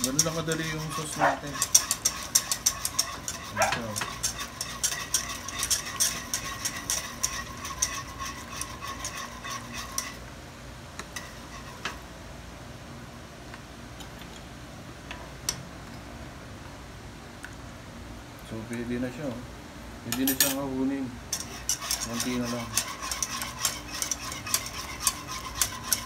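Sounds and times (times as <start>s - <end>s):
utensil tapping pot: 0.0s - 10.2s
wire whisk clinking in saucepan: 0.0s - 10.2s, 21.3s - 26.0s.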